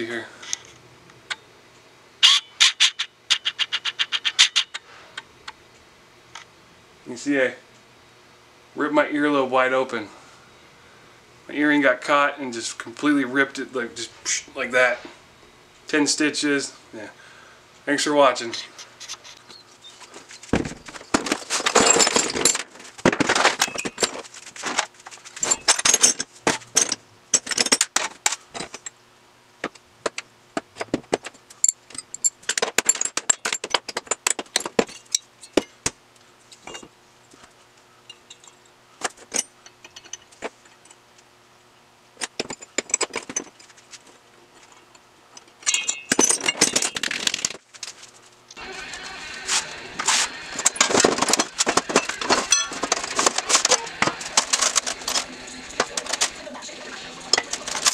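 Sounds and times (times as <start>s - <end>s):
metal parts clinking on a workbench: 20.9s - 24.3s, 25.3s - 29.0s, 31.1s - 35.8s, 38.1s - 41.0s, 42.2s - 43.8s, 44.5s - 47.6s, 50.6s - 56.2s.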